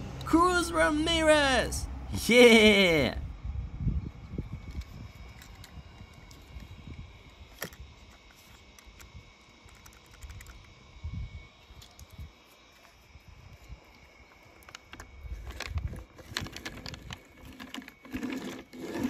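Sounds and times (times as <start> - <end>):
toy car clicking and tapping: 9.7 - 10.6.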